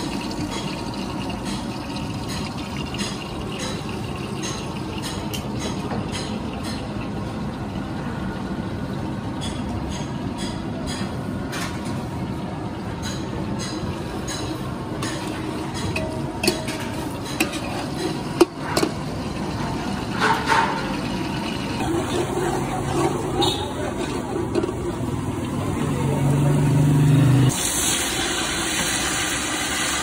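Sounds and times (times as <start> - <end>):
road traffic: 11.5 - 29.4
ladle clinking on metal pot: 13.0 - 19.0.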